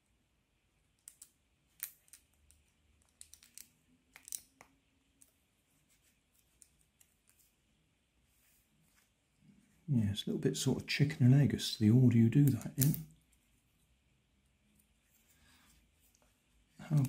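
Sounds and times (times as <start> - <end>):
plastic puzzle pieces clicking: 1.0 - 5.4, 12.4 - 13.0.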